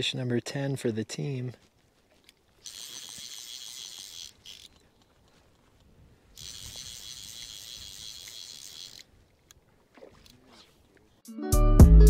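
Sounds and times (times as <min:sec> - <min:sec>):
fly reel click drag buzzing: 0:02.6 - 0:05.1, 0:06.3 - 0:09.6.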